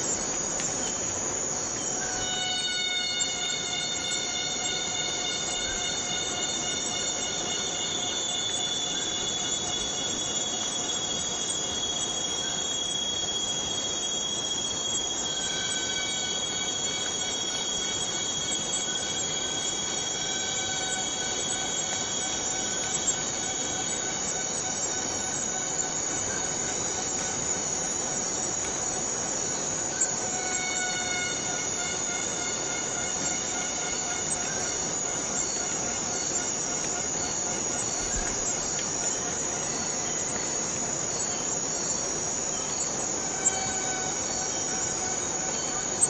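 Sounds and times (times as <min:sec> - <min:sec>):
cicadas droning: 0:00.0 - 0:46.0
faint ticks: 0:00.1 - 0:01.9, 0:33.1 - 0:40.6.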